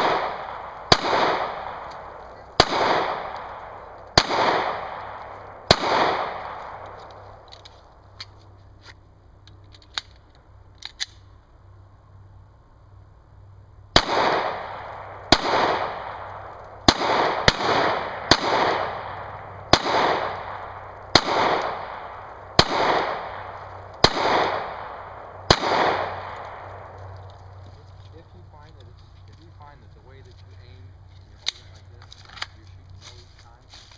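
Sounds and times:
pistol shots with echo: 0.0 - 7.0, 13.9 - 27.0
pistol handling clicks: 9.4 - 11.3, 31.4 - 32.6.

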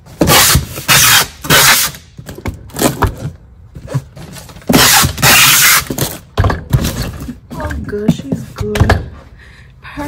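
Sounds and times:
packing tape tearing off roll: 0.2 - 3.0, 3.8 - 6.3.

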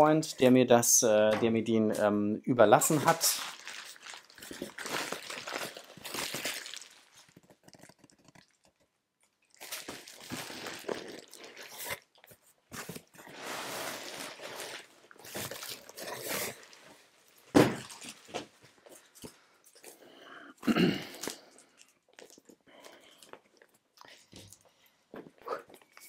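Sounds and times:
plastic and paper crinkling: 2.8 - 8.8, 9.5 - 19.4.

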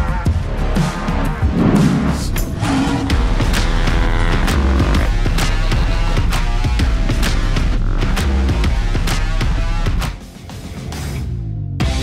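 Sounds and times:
steady drum beat: 1.0 - 10.0
rock music with guitar: 2.7 - 12.0.

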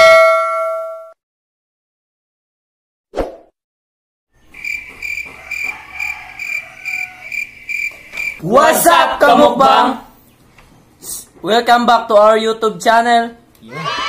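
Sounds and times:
cricket chirping: 4.5 - 8.4.

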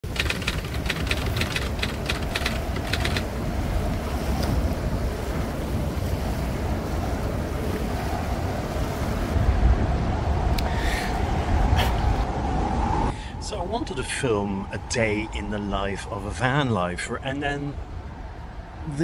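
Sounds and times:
typewriter-like clicks: 0.0 - 3.3
wind buffeting microphone: 0.0 - 19.0
small waves breaking on shore: 0.1 - 10.1.

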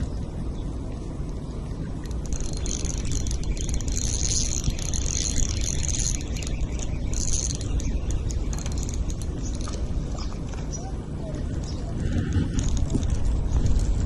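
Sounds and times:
wind rumble on microphone: 0.0 - 14.0
spinning reel whirring: 2.0 - 10.0.

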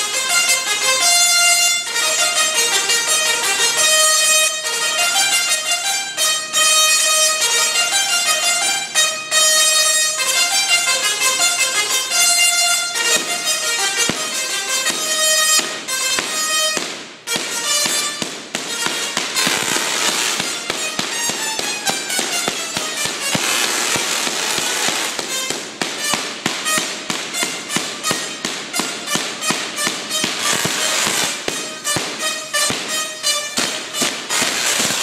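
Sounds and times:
tesla coil buzzing notes: 17.4 - 35.0.

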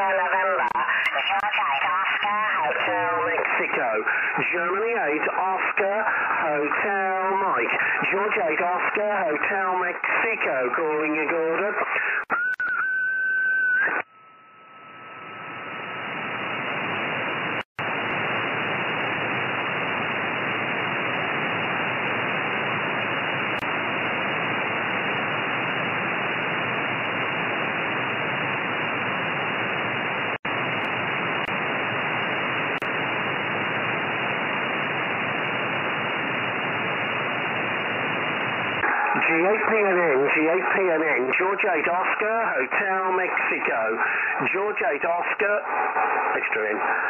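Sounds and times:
radio receiver hiss: 0.0 - 12.5, 14.8 - 47.0
radio whistle: 11.8 - 16.1.

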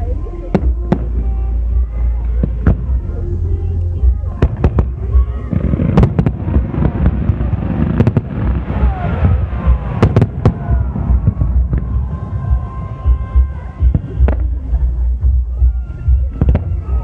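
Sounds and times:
low rumble and crackle: 0.0 - 17.0
firework shells bursting with bangs: 4.3 - 12.9.

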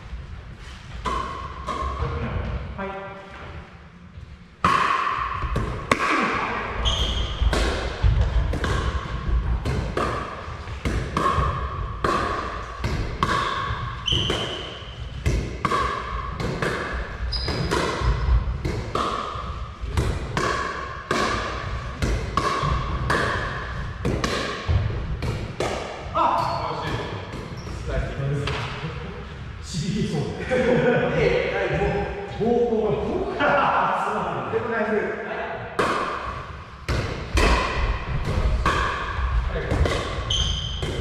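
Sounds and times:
paddles hitting plastic ball: 7.4 - 14.6, 15.2 - 26.0.

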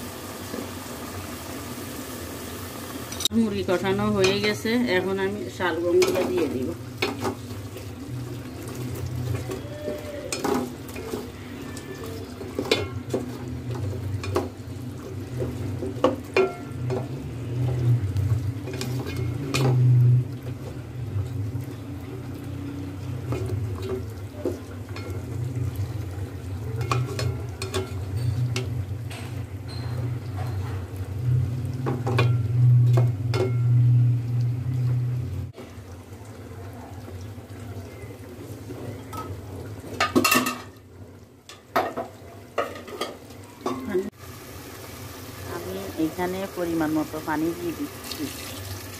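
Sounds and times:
masala frying: 0.0 - 48.9
low steady hum: 12.4 - 35.6.

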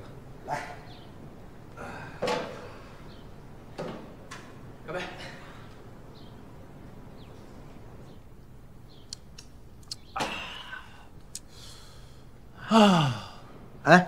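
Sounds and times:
breathy vocal ah: 1.7 - 3.0, 10.2 - 13.5
loud sigh: 10.2 - 11.1, 11.7 - 13.5.

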